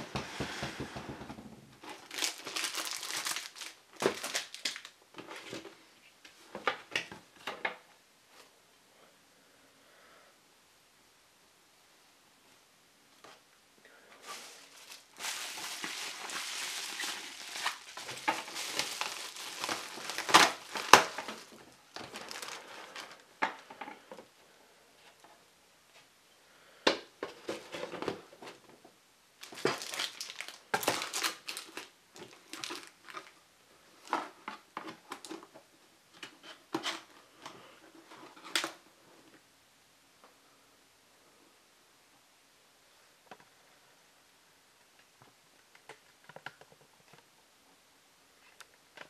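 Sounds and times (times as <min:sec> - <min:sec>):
cardboard rustling: 0:00.0 - 0:05.8, 0:14.2 - 0:23.2
paper crumpling: 0:01.8 - 0:05.6, 0:14.2 - 0:23.2, 0:29.4 - 0:33.3.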